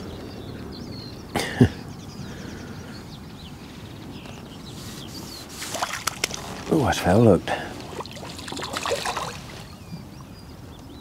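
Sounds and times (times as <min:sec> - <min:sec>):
man coughing: 0:01.4 - 0:01.8.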